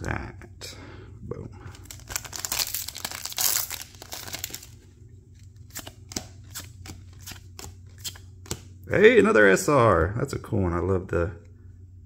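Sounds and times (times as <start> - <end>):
foil wrapper crinkling and tearing: 1.7 - 4.8
cards snapping: 5.5 - 8.7.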